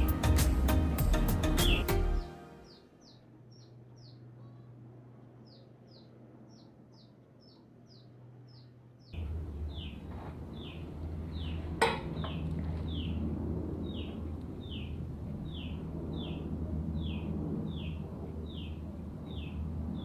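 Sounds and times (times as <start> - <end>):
small bird chirping: 2.7 - 10.0
low rumble: 7.9 - 20.0.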